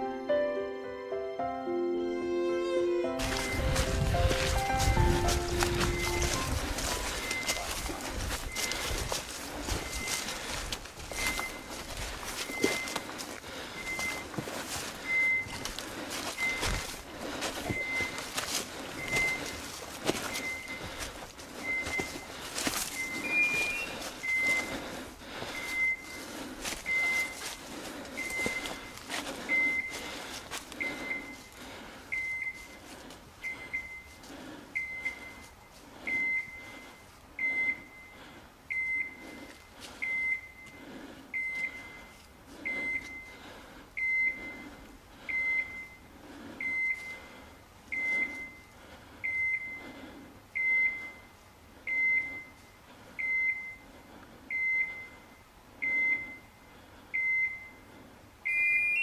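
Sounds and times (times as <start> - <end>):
footsteps: 3.1 - 37.1
electronic collar beeping: 3.2 - 9.0, 9.7 - 10.3, 12.4 - 13.0, 13.8 - 14.3, 15.0 - 15.7, 16.4 - 16.8, 17.6 - 18.2, 19.0 - 19.5, 20.2 - 20.9, 21.6 - 22.3, 22.9 - 24.7, 25.6 - 26.2, 26.9 - 27.4, 28.2 - 30.0, 30.8 - 31.5, 32.1 - 32.8, 33.4 - 34.2, 34.8 - 35.5, 36.1 - 39.3, 44.0 - 44.6, 54.5 - 56.5, 58.4 - 59.0
brush crackling: 3.2 - 37.2.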